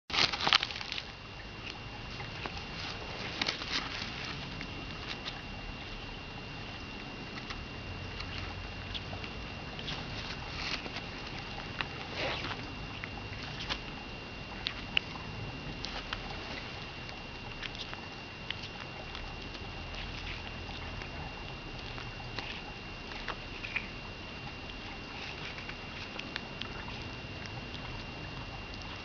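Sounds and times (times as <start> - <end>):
tortoise chewing with wet crunches: 0.1 - 29.0.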